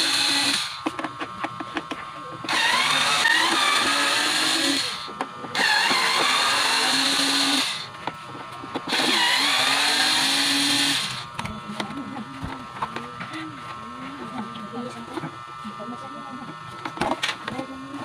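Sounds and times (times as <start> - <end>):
electric screwdriver running: 0.0 - 0.9, 2.5 - 7.9, 8.8 - 11.5.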